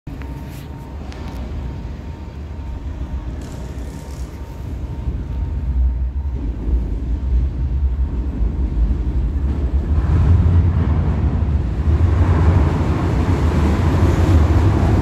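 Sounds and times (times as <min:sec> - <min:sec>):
train rumble approaching: 0:00.2 - 0:15.0.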